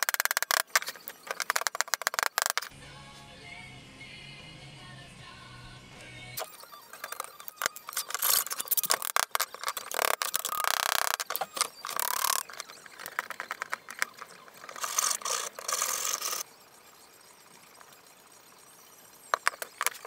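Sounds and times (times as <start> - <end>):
tin snips cutting metal: 6.4 - 16.4.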